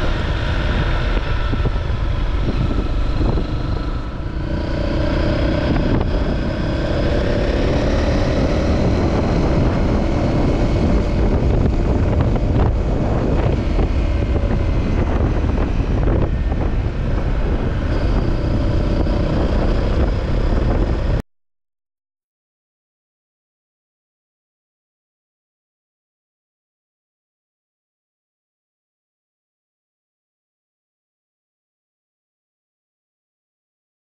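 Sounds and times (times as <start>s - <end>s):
motorcycle engine running: 0.0s - 21.2s
wind buffeting microphone: 0.0s - 21.2s.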